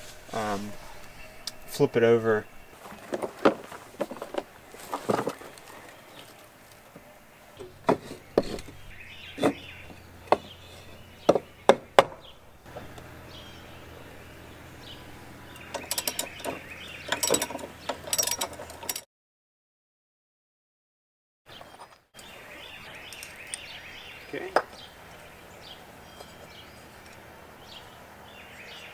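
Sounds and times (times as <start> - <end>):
sharp knocks: 11.2 - 12.9.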